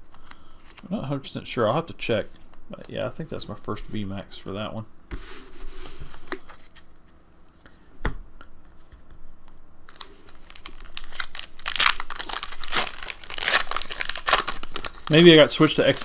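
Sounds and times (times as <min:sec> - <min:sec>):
foil wrapper tearing and crinkling: 0:09.9 - 0:16.0.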